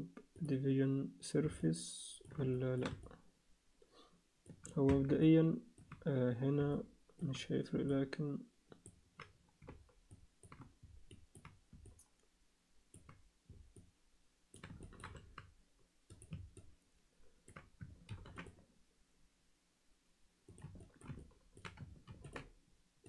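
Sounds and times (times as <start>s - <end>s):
computer mouse and keyboard clicks: 2.2s - 3.2s, 4.4s - 6.1s, 8.7s - 12.3s, 12.9s - 13.9s, 14.5s - 16.8s, 17.4s - 18.6s, 20.5s - 22.6s.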